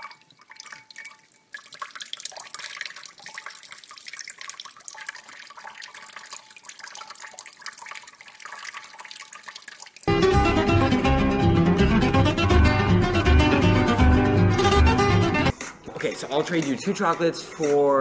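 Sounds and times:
faucet water splashing into sink: 0.0 - 10.1.

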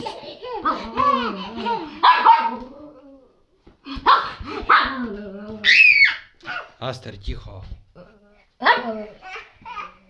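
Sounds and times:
small dog barking: 2.0 - 2.6, 4.0 - 6.7, 8.6 - 9.0.

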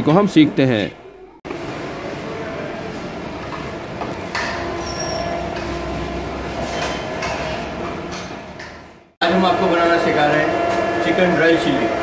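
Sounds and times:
low rumble of fans and extraction: 0.0 - 12.0
faint kitchen knocks and clinks: 6.5 - 9.0.

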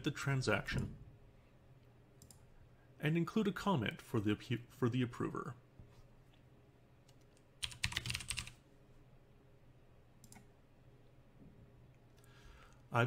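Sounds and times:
computer keyboard typing: 7.1 - 8.6.

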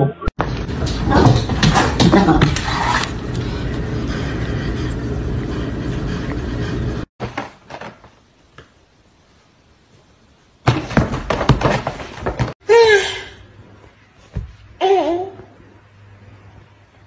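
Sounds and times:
cats fighting thumps and scuffs: 0.4 - 3.2, 10.7 - 12.6.

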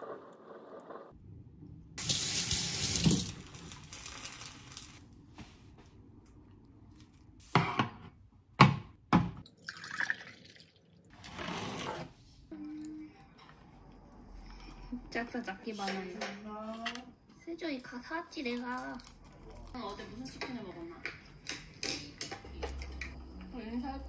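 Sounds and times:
kitchen tap running: 2.0 - 5.0.

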